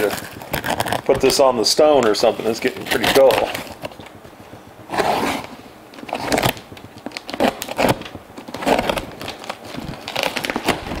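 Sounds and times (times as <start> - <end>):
tape and cardboard crinkling: 0.0 - 11.0
knife slicing packing tape: 5.0 - 10.9.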